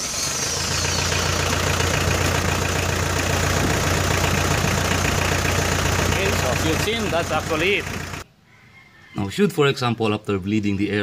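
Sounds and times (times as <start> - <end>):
diesel engine idling: 0.0 - 8.3.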